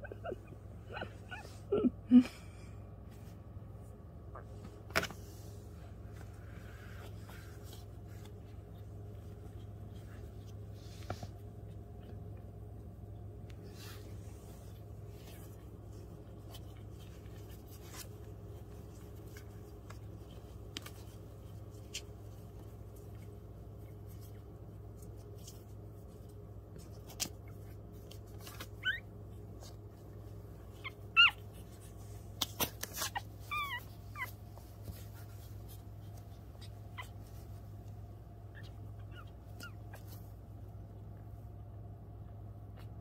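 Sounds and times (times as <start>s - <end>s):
puppies squeaking and whimpering: 0.0s - 1.8s, 28.4s - 29.8s, 30.7s - 35.1s, 36.4s - 37.6s, 38.5s - 40.3s
steady low hum: 0.0s - 43.0s.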